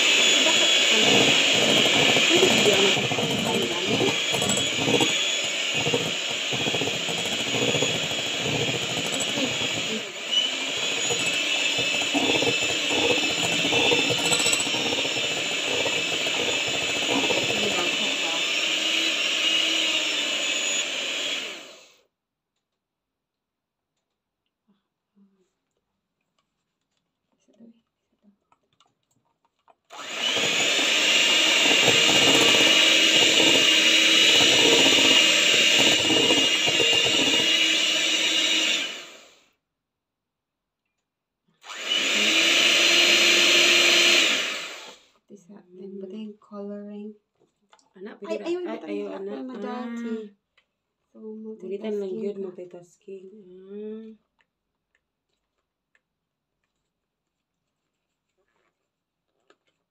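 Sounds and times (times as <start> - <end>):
electric hand mixer whisking: 0.0 - 22.0, 29.9 - 39.4, 41.6 - 45.0.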